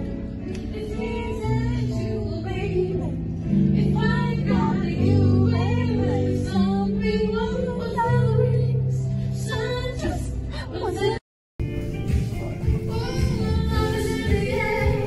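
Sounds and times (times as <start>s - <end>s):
song with singing voice: 11.8s - 15.0s.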